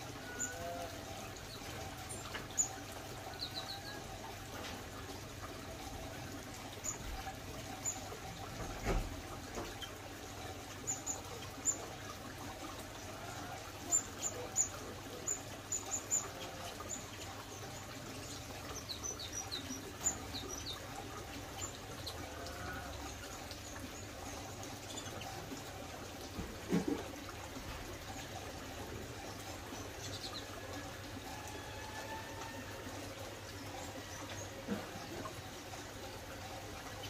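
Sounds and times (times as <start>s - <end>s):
water trickling: 0.0s - 37.0s.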